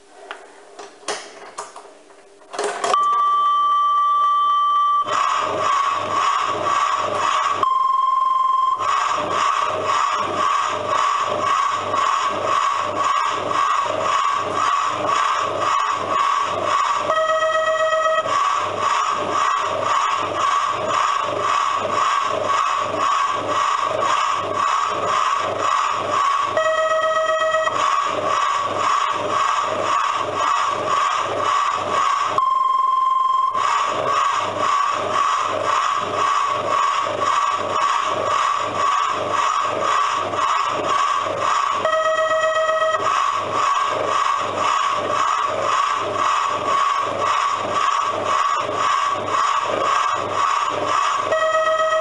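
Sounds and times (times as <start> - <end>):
steam locomotive chuffing: 5.0 - 7.6, 8.6 - 52.0
steam whistle blast: 51.2 - 52.0.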